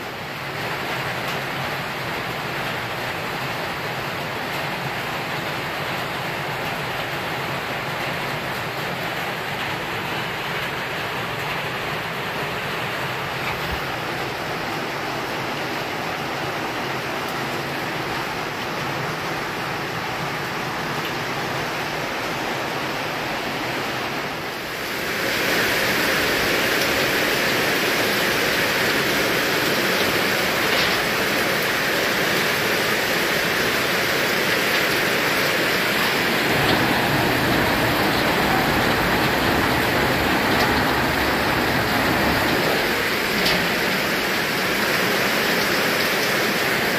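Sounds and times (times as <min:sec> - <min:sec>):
heavy rain: 0:00.0 - 0:46.9
rainwater pouring into plastic drum: 0:24.8 - 0:46.9.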